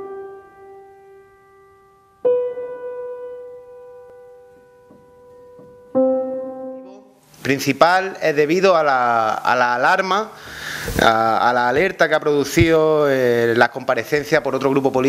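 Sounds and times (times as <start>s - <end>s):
slow solo piano chords: 0.0s - 7.4s.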